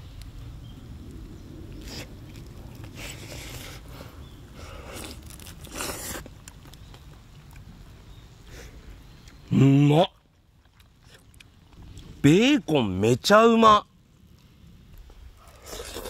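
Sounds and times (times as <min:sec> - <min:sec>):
person chewing bacon: 0:04.6 - 0:06.5, 0:10.6 - 0:12.1, 0:15.4 - 0:16.0.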